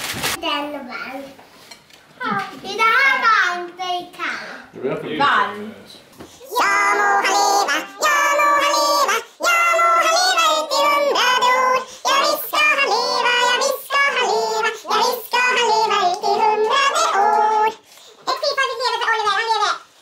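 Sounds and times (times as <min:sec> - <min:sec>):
child singing: 0:06.4 - 0:19.9.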